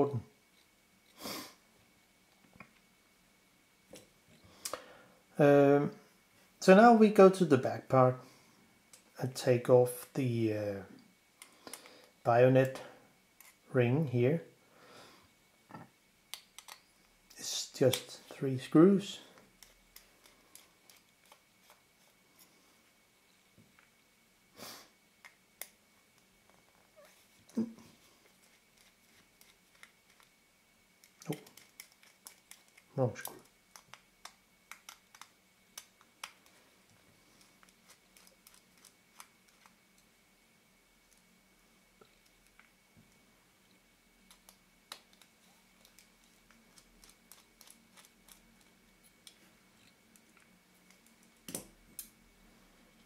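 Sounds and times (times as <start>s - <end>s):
small tools and metal clicking: 15.7s - 18.1s
small screws and screwdriver clicking: 16.3s - 16.9s.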